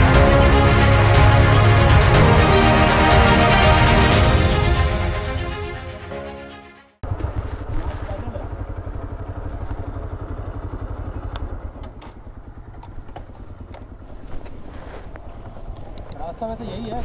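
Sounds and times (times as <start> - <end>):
motorcycle engine running: 7.0 - 17.0
light clicks: 13.7 - 16.2.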